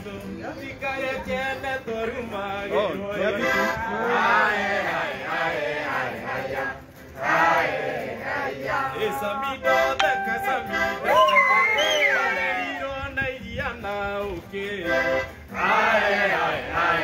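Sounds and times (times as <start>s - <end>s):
guitar: 0.0s - 17.0s
accordion: 2.7s - 4.4s, 9.0s - 12.5s, 14.5s - 17.0s
group of people singing: 3.8s - 11.0s, 15.5s - 17.0s.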